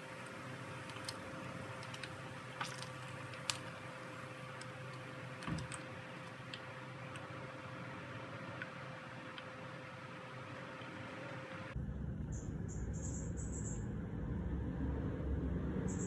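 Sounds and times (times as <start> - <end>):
oil sizzling in a frying pan: 0.0 - 7.0
faint steady hum: 0.0 - 16.0.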